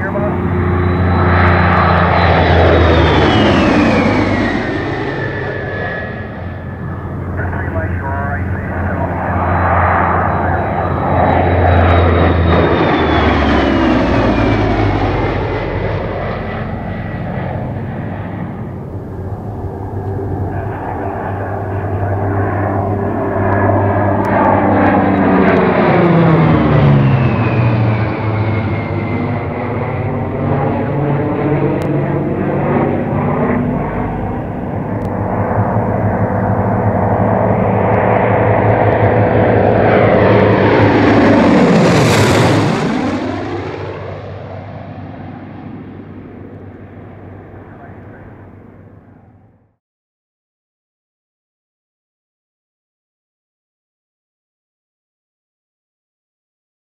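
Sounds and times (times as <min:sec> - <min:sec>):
piston aircraft engines droning: 0:00.0 - 0:49.8
propeller plane flying past: 0:00.0 - 0:49.8.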